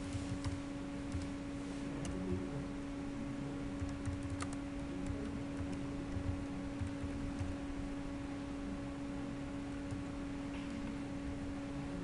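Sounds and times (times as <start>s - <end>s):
steady electrical hum: 0.0s - 12.0s
computer keyboard keys clicking: 0.3s - 1.3s, 3.8s - 7.6s.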